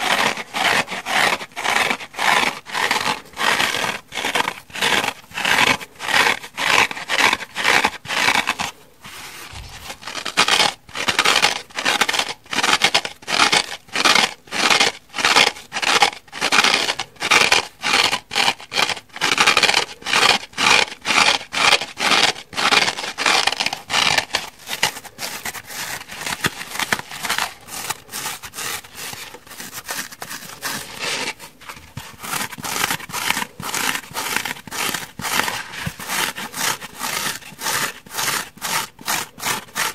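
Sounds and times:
fingernails scratching sponge: 0:00.0 - 0:39.9.

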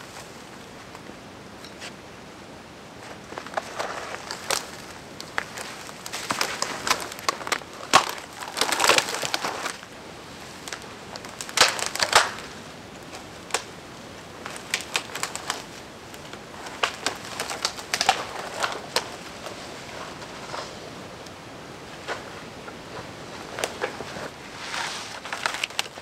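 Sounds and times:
dry branches snapping: 0:03.2 - 0:10.0, 0:10.6 - 0:20.3, 0:23.5 - 0:26.0.

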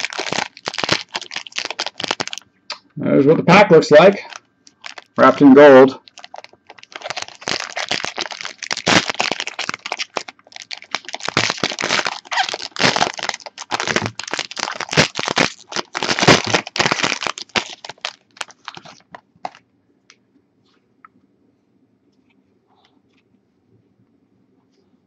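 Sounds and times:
foil wrapper crinkling: 0:00.0 - 0:02.4, 0:04.2 - 0:19.6.

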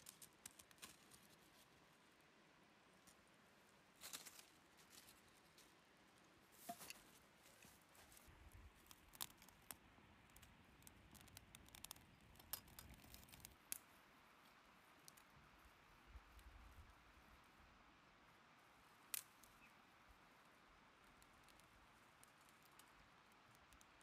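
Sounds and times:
small fire crackling: 0:00.0 - 0:02.2, 0:02.8 - 0:24.0.

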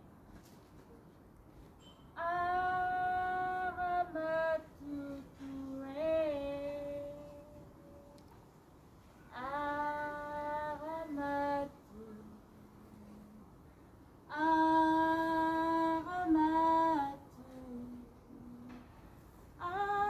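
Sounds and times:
woman singing long notes: 0:02.2 - 0:08.2, 0:09.3 - 0:13.4.

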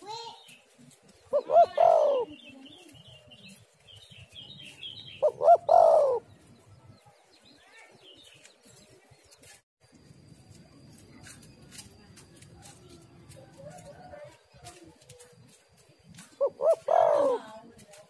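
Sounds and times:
dove cooing: 0:01.2 - 0:02.7, 0:05.1 - 0:06.4, 0:16.3 - 0:17.7.

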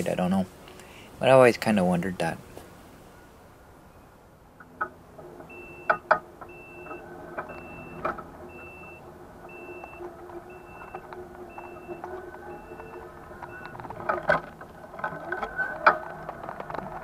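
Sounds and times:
low steady hum: 0:00.0 - 0:17.0
reverse warning beeps: 0:05.5 - 0:14.0.

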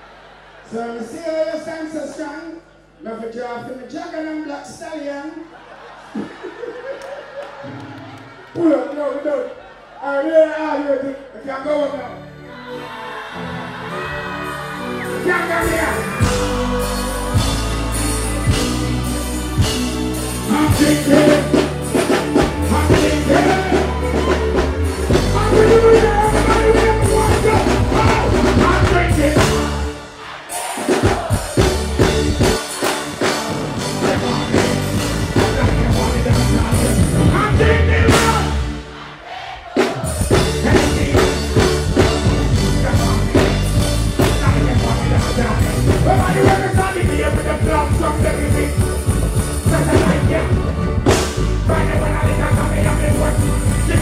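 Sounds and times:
reggae music through sound system: 0:00.0 - 0:08.5, 0:13.3 - 0:54.0
person singing into microphone: 0:51.6 - 0:54.0.

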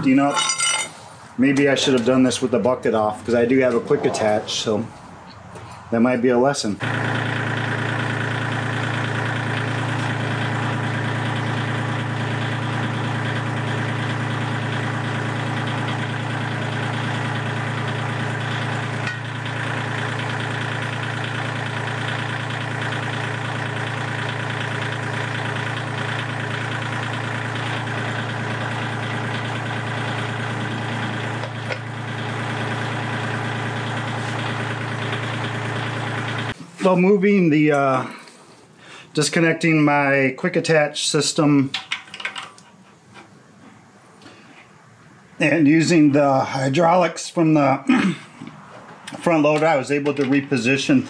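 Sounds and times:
tractor diesel engine idling: 0:06.8 - 0:36.6.

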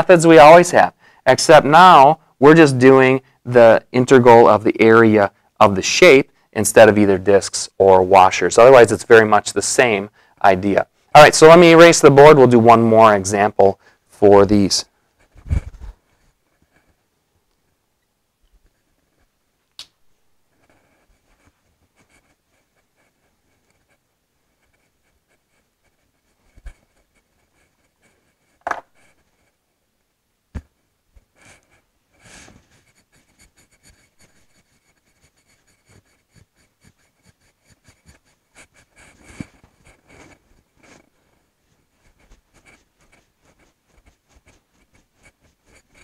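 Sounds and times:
cloth rubbing on glass: 0:15.2 - 0:17.0, 0:31.2 - 0:46.0
sharp knocks: 0:28.6 - 0:28.9.

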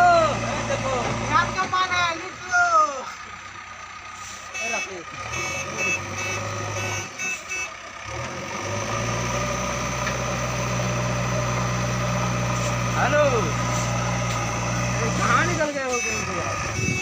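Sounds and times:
diesel engines running: 0:00.0 - 0:17.0
repeated beeps: 0:04.6 - 0:07.7.

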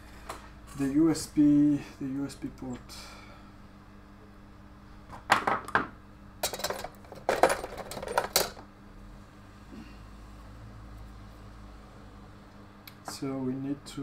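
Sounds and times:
metal tools clinking on workbench: 0:06.4 - 0:08.6.

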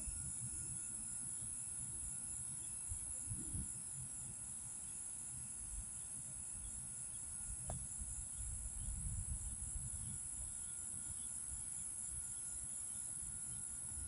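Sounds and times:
insects chirring: 0:00.0 - 0:14.0.

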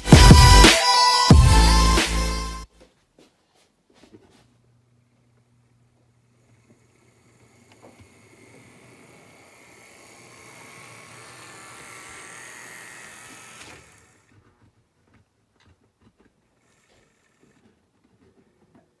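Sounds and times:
model train whirring: 0:05.3 - 0:14.6, 0:16.4 - 0:17.8.

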